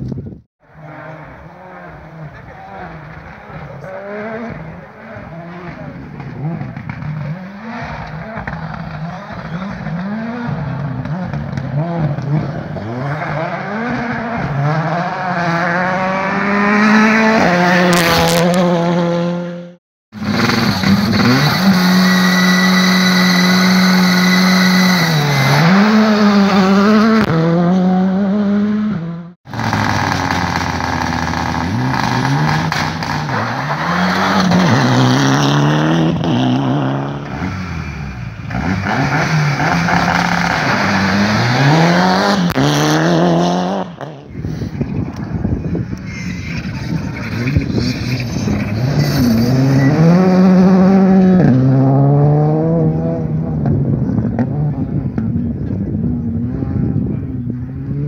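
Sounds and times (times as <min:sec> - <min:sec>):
rally car engines revving: 0:00.6 - 0:58.0.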